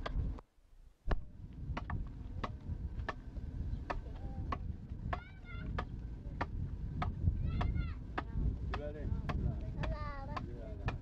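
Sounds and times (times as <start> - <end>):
adze chopping into wood: 1.1 - 3.2.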